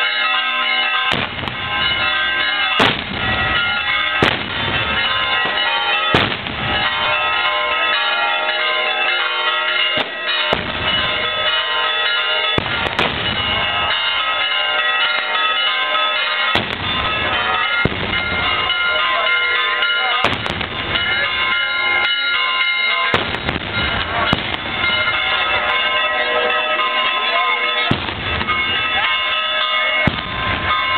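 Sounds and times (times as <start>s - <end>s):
crowd noise: 0.0s - 30.9s
ringing of steady tones: 0.0s - 30.9s
firecrackers exploding: 1.1s - 1.9s, 2.8s - 7.0s, 10.0s - 11.5s, 12.6s - 13.8s, 16.5s - 18.4s, 20.2s - 21.1s, 23.1s - 25.1s, 27.9s - 28.8s, 30.0s - 30.8s.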